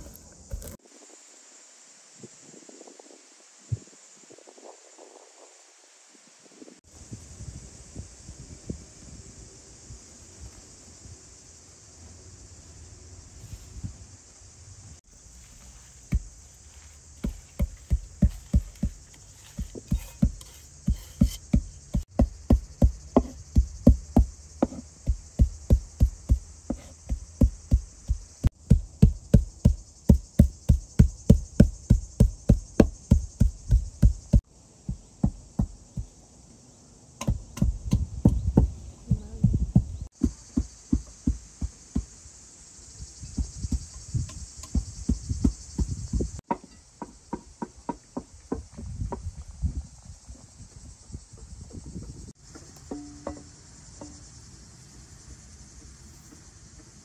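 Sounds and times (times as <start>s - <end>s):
faint high hiss: 0.0s - 17.2s
knife chopping on wooden board: 0.1s - 0.8s, 17.2s - 29.8s.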